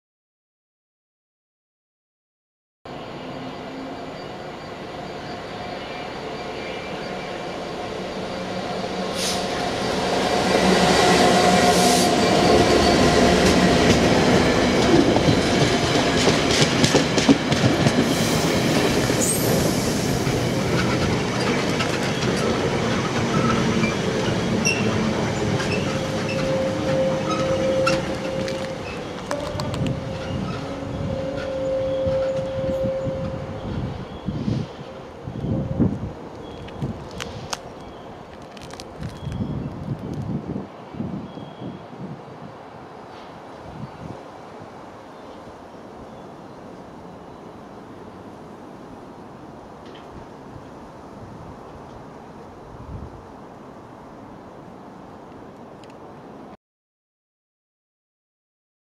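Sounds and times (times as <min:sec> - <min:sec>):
wagons rumbling over rails: 0:02.9 - 0:37.2
diesel locomotive passing: 0:02.9 - 0:39.1.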